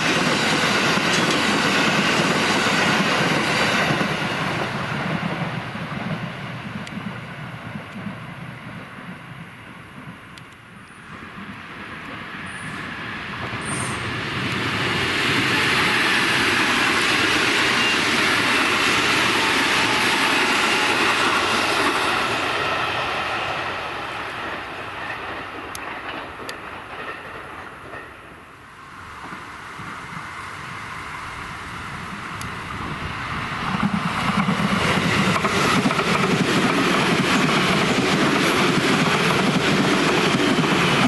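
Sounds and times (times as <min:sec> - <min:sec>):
train wheels rumbling on track: 0:00.0 - 0:41.0.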